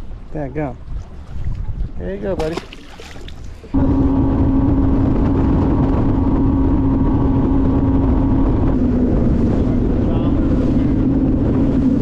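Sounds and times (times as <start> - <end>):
wind and water rumble: 0.0 - 12.0
outboard motor droning: 3.0 - 12.0.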